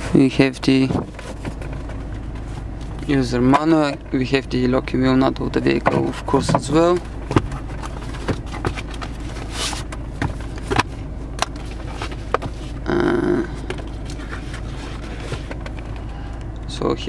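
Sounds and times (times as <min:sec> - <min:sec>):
steady low hum: 0:00.0 - 0:17.0
paper rustling and sliding: 0:07.8 - 0:10.6, 0:13.9 - 0:15.8.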